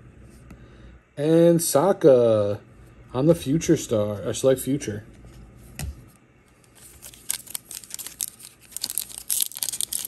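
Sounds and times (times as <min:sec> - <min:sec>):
foil wrapper crinkling and tearing: 0:06.6 - 0:10.0.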